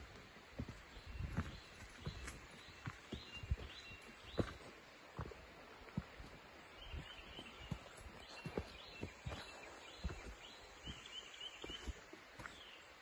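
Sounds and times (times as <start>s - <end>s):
footsteps on rocky dirt trail: 0.0s - 12.9s
bird chirping: 0.9s - 4.7s, 6.7s - 12.9s.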